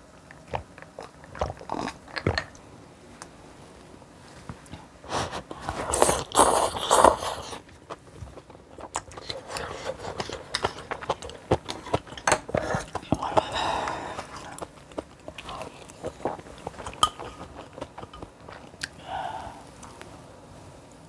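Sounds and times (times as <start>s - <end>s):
person chewing food: 0.2s - 2.6s, 4.6s - 20.0s.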